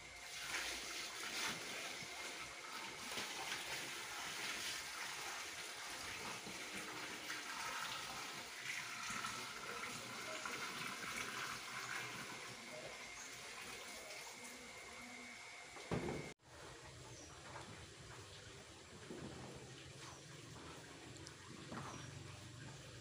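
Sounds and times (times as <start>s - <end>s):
water pouring into washing machine: 0.1s - 14.8s.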